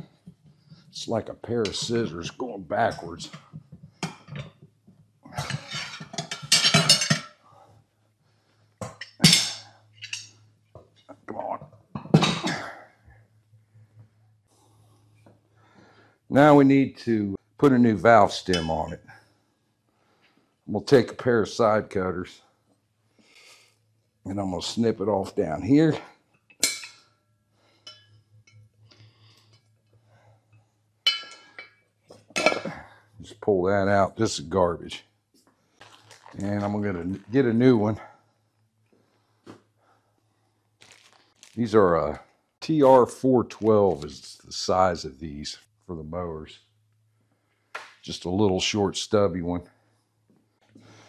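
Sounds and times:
tool clinking against metal rim: 0:05.4 - 0:07.4, 0:27.8 - 0:28.6, 0:31.1 - 0:32.8.

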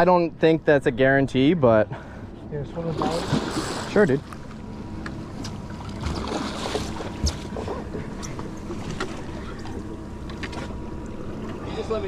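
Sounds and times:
wind: 0:00.0 - 0:12.0
water noise: 0:02.7 - 0:12.0
fish splashing at the surface: 0:02.9 - 0:04.0, 0:05.8 - 0:07.4.

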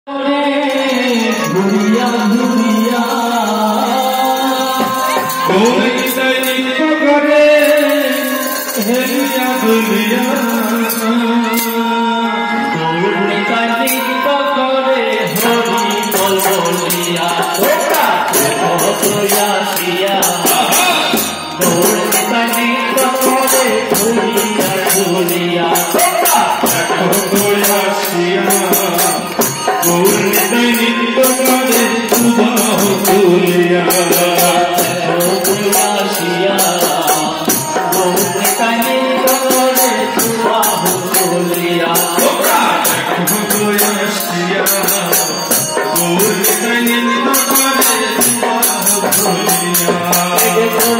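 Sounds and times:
man singing: 0:00.0 - 0:50.9
keyboard accompaniment: 0:00.1 - 0:50.9
jingling hand percussion: 0:00.4 - 0:50.9.

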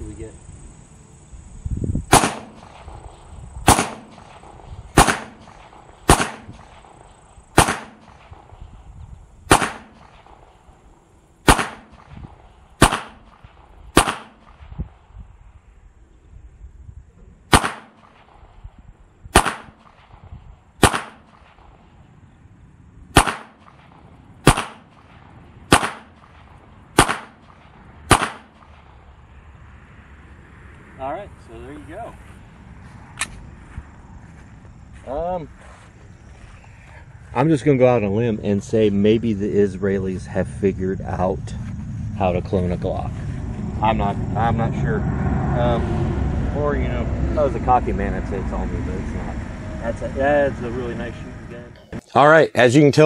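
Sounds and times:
pistol gunshots: 0:02.1 - 0:08.6, 0:09.5 - 0:10.6, 0:11.4 - 0:14.8, 0:17.5 - 0:18.4, 0:19.3 - 0:20.2, 0:20.8 - 0:21.8, 0:23.1 - 0:29.0.

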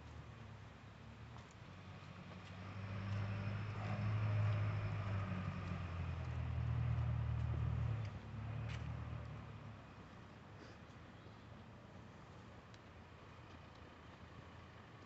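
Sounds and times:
vehicle passing by: 0:01.7 - 0:09.8.

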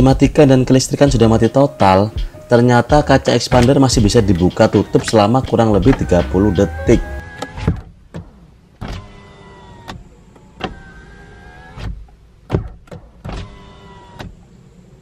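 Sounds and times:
electric window motor whining: 0:03.6 - 0:15.0.

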